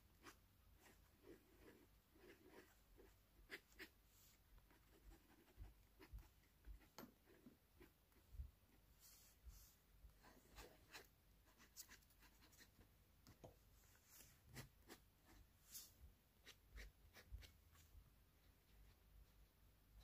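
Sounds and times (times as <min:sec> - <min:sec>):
pen nib scratching on paper: 0:00.2 - 0:04.0, 0:04.6 - 0:08.2, 0:16.4 - 0:17.8.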